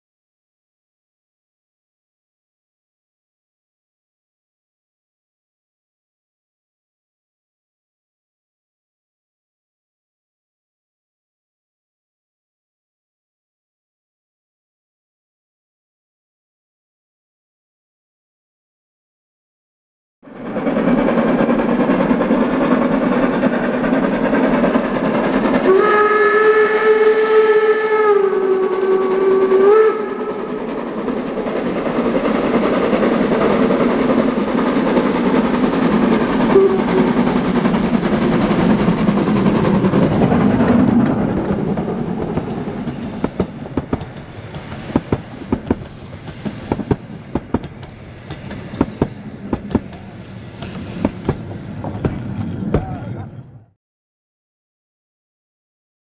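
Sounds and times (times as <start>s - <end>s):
steam train running: 20.3s - 53.6s
rail joint clicks: 20.6s - 25.6s, 30.4s - 53.1s
steam whistle: 25.6s - 30.7s, 36.4s - 37.3s.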